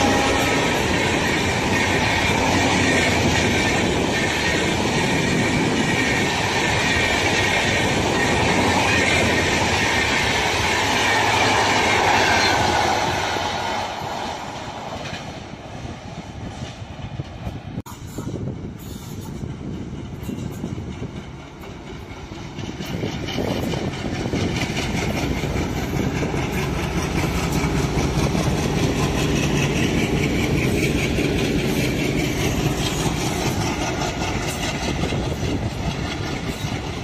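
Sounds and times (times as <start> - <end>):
train wheels rushing on rails: 0.0 - 37.0.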